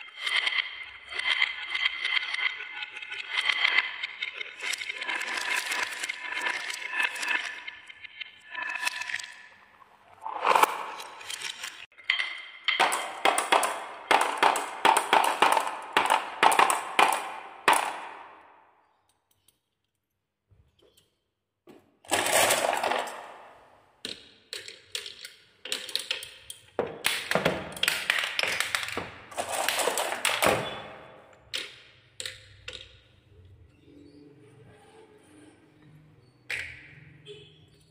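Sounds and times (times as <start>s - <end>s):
marbles clattering through wooden run: 0.0s - 18.6s, 22.1s - 33.1s.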